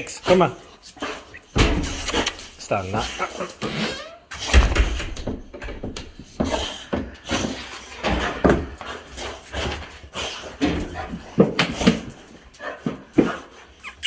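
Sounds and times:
dog noises: 6.4s - 14.0s.

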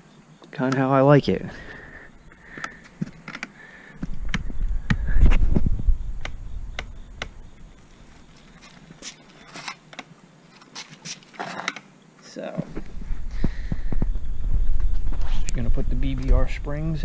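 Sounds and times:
camera handling rumble: 2.5s - 7.4s.

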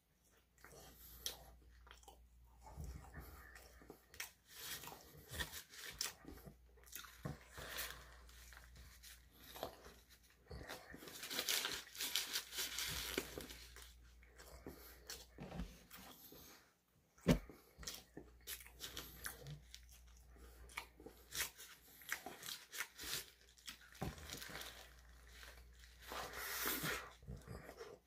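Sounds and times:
biting and chewing food: 0.2s - 16.6s, 17.2s - 28.0s
paper wrapper crinkling: 11.0s - 14.1s.

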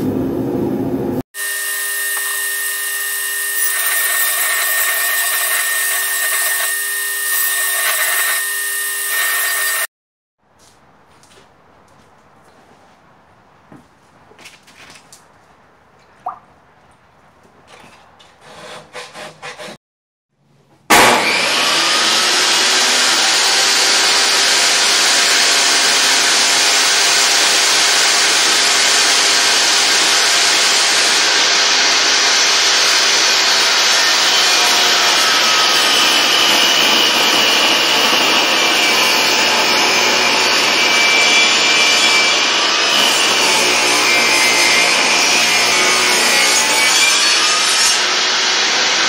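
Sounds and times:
table saw cutting wood: 1.4s - 9.9s, 18.4s - 19.8s, 20.9s - 49.0s.

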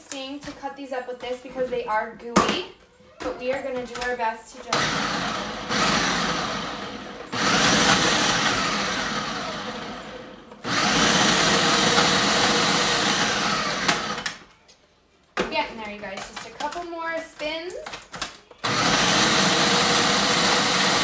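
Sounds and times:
electric food chopper whirring: 4.7s - 14.4s, 18.6s - 21.0s.

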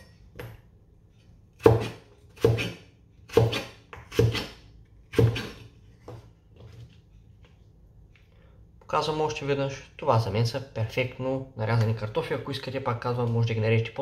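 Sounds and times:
cleaver chopping on wooden board: 1.6s - 5.6s.

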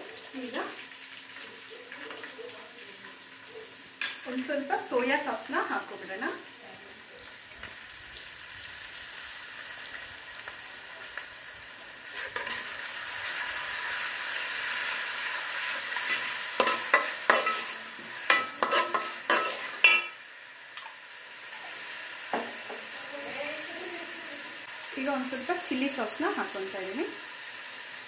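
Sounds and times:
vegetables sizzling in a pot: 0.0s - 28.0s
spoon scraping and clinking on pot: 16.1s - 20.2s.

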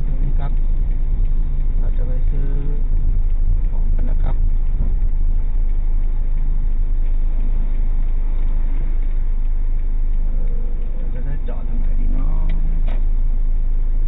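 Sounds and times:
car engine rumble: 0.0s - 14.0s
road noise inside car: 0.0s - 14.0s.

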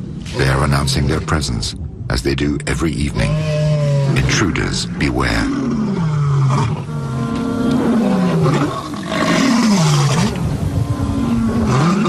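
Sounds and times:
lions roaring: 3.1s - 12.0s.

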